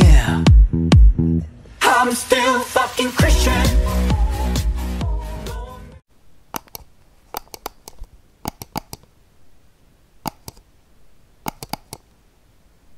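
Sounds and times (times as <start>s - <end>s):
faint room hiss: 6.0s - 12.9s
sharp clicks: 6.5s - 9.1s, 10.2s - 10.7s, 11.4s - 12.2s.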